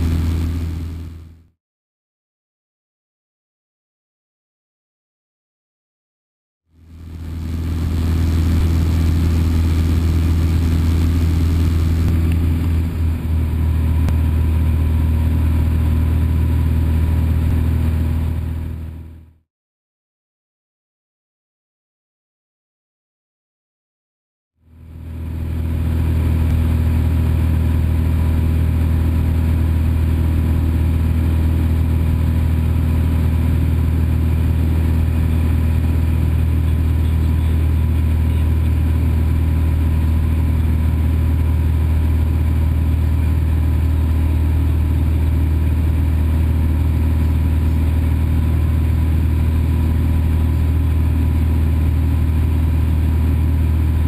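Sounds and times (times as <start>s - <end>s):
propeller plane engine droning: 0.0s - 1.4s, 6.8s - 19.3s, 24.7s - 54.0s.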